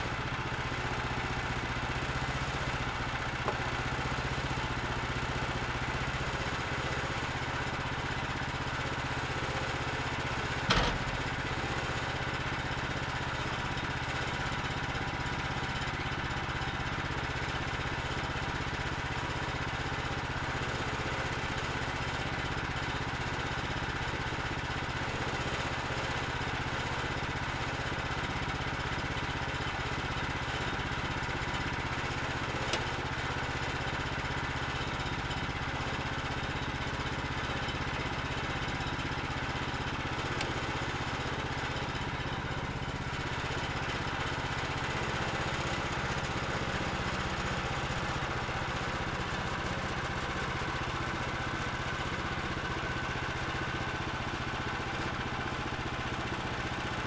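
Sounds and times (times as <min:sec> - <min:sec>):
small gas engine running: 0:00.0 - 0:57.0.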